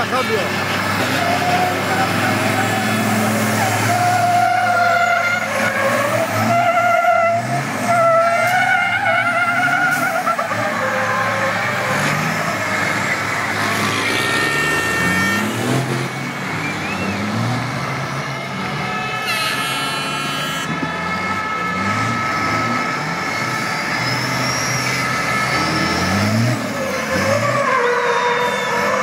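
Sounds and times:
tyres squealing: 0.0s - 17.5s, 18.6s - 29.0s
diesel engines revving: 0.0s - 29.0s
horn sounding: 13.5s - 16.1s, 18.1s - 26.6s.

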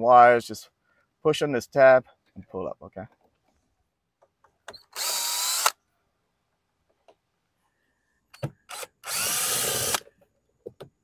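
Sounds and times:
cordless drill backing out screws: 8.4s - 10.1s.

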